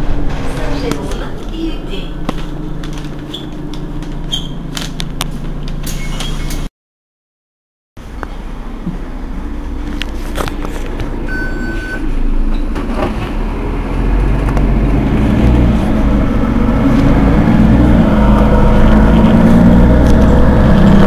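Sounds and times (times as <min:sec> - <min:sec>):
bus diesel engine revving: 0:09.2 - 0:21.0
short beep: 0:11.3 - 0:12.1.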